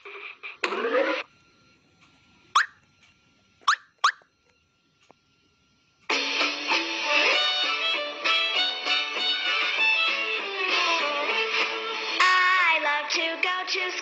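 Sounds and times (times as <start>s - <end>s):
cartoon toad croak: 2.6s - 2.8s, 3.6s - 4.2s
guitar music: 6.1s - 12.2s.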